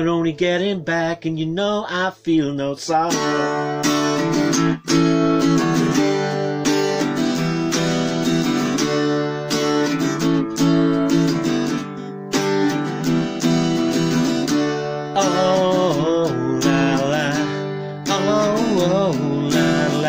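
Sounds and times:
strummed guitars: 0:00.0 - 0:20.0
wavering lead guitar line: 0:00.0 - 0:20.0
electric guitar: 0:03.0 - 0:20.0.

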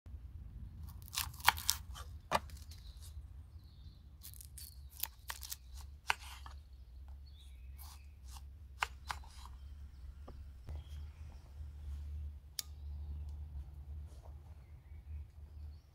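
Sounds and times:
low steady rumble: 0:00.1 - 0:01.1, 0:09.5 - 0:15.9
crackling onion skin: 0:00.8 - 0:03.0, 0:04.1 - 0:06.5.

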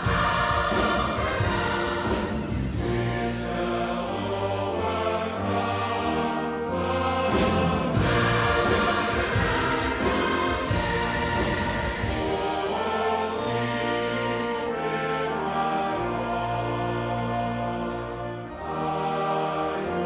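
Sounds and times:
massed choir singing: 0:00.0 - 0:20.0
symphony orchestra: 0:00.0 - 0:20.0.

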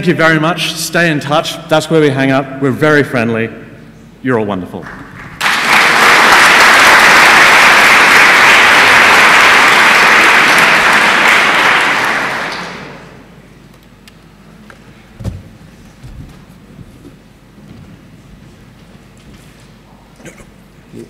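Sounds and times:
audience applauding: 0:04.9 - 0:13.3
low thump: 0:15.2 - 0:16.9.

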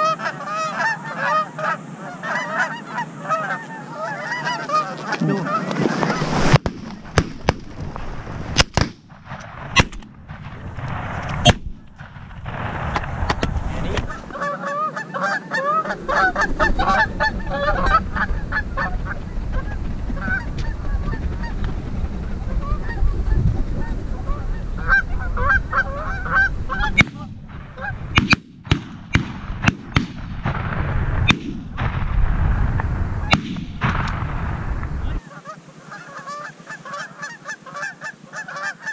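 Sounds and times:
geese honking: 0:00.0 - 0:07.2, 0:13.0 - 0:28.4, 0:33.2 - 0:38.9
wind rumbling on microphone: 0:03.5 - 0:14.6, 0:15.2 - 0:35.2.

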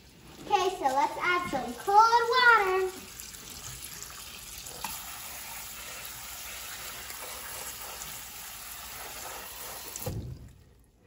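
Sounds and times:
water splashing through pasta: 0:00.0 - 0:11.0.

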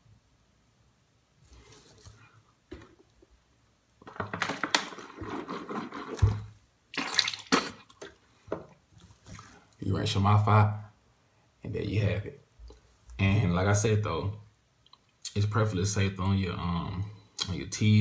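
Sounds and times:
drinking from plastic bottle: 0:04.8 - 0:08.2.

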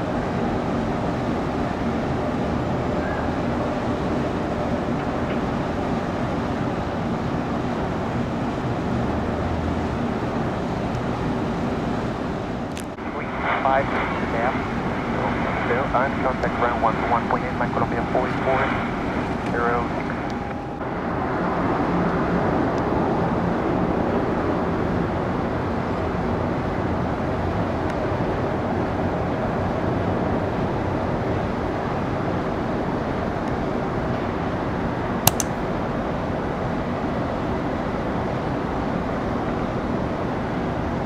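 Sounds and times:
jet airliner engines rumbling: 0:00.0 - 0:41.0
sharp click: 0:35.3 - 0:35.6.

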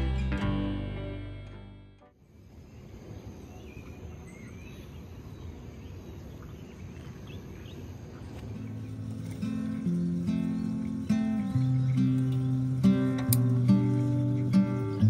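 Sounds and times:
guitar music: 0:00.0 - 0:02.1, 0:08.6 - 0:15.0
faint bird chirps: 0:02.5 - 0:15.0.

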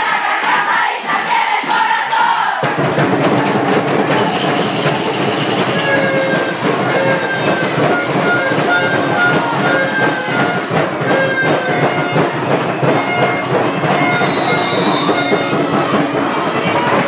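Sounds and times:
crowd noise: 0:00.0 - 0:17.0
dense drumming: 0:02.6 - 0:17.0
short held musical notes: 0:04.2 - 0:15.9.

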